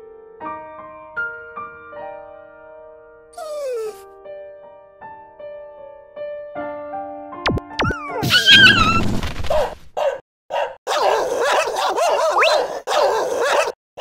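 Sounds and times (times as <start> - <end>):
dog barking and yelping: 8.3 - 13.8.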